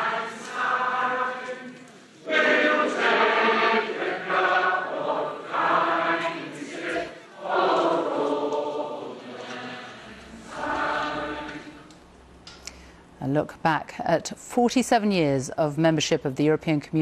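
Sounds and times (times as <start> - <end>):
group of voices singing: 0.0 - 12.0.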